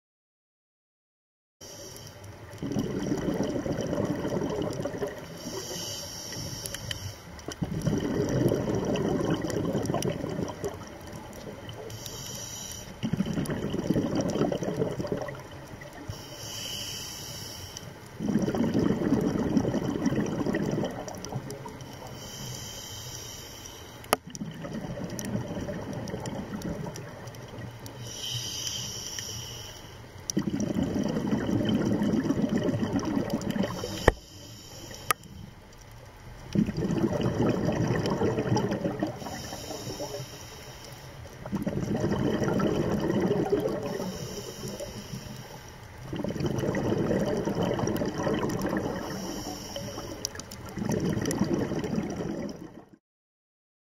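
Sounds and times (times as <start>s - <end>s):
regulator hissing inhale: 1.6s - 2.3s, 5.2s - 7.5s, 11.8s - 13.0s, 16.0s - 18.1s, 21.8s - 24.2s, 27.8s - 30.2s, 33.7s - 35.6s, 39.2s - 41.4s, 43.8s - 46.0s, 49.0s - 50.5s
bubbling exhale underwater: 2.4s - 6.6s, 7.4s - 16.6s, 18.1s - 22.8s, 24.1s - 28.9s, 30.3s - 35.2s, 36.4s - 40.4s, 41.2s - 53.0s.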